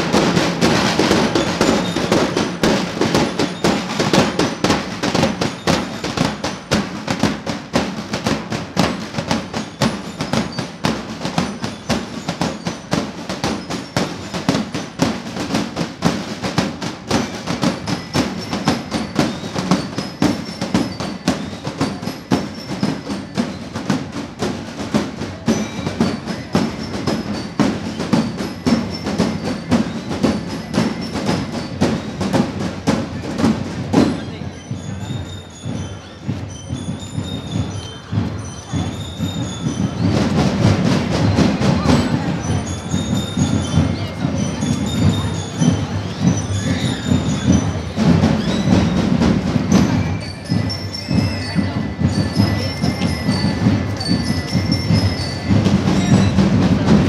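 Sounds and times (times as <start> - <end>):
marching drums beating: 0.0 - 57.0
bell-like melody: 25.2 - 57.0.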